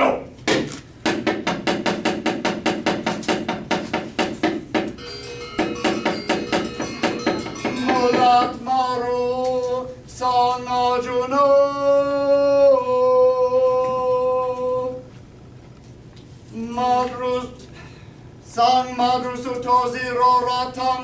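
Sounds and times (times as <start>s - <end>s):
sharp wooden knocks: 0.5s - 5.0s, 5.6s - 8.6s
man chanting long notes: 7.7s - 9.9s.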